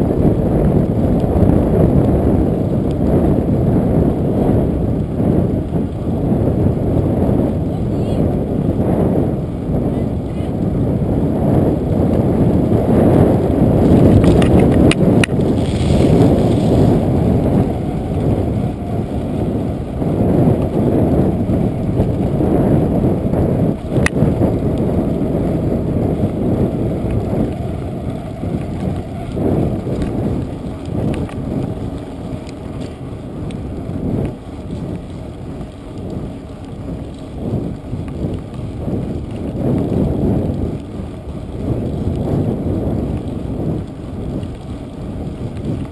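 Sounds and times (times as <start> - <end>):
tyre noise on asphalt: 0.0 - 45.9
wind buffeting microphone: 0.0 - 45.9
sharp clicks from bicycle: 11.9 - 45.9.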